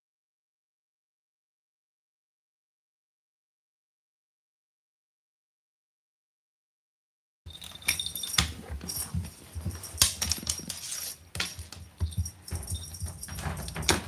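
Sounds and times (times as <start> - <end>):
cat paws knocking and scraping floor: 7.5 - 14.0.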